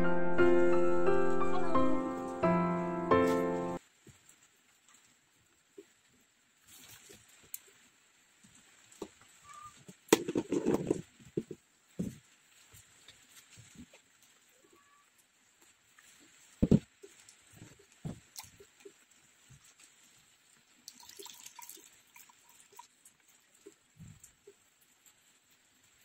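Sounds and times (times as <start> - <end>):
knocks and thumps: 9.9 - 12.2, 16.6 - 17.0, 17.6 - 18.3.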